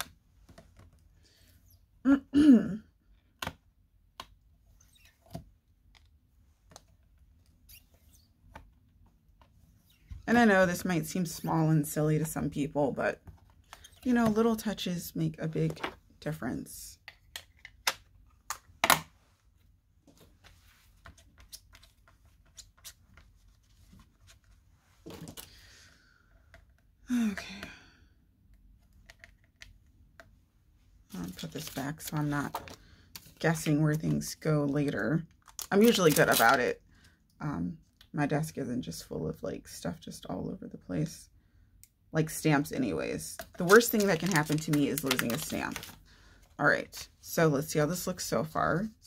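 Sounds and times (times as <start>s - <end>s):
person clearing throat: 2.1s - 2.8s
craft supplies clicking on desk: 43.6s - 45.9s.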